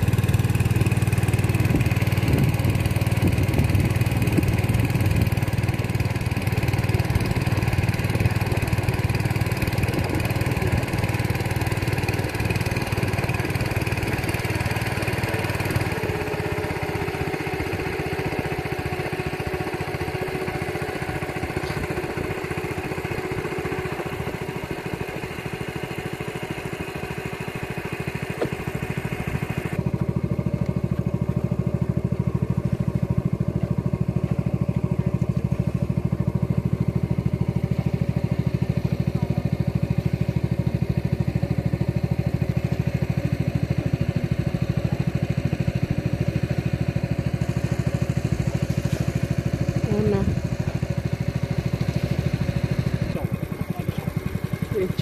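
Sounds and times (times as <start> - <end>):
boat engine droning: 0.0 - 55.0.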